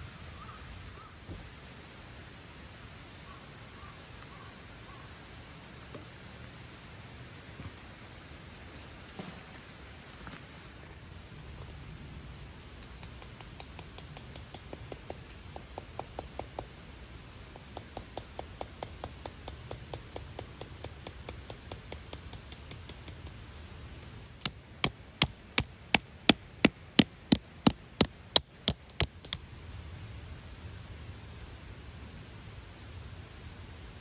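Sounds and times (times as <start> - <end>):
hammer strikes: 24.4 - 29.4.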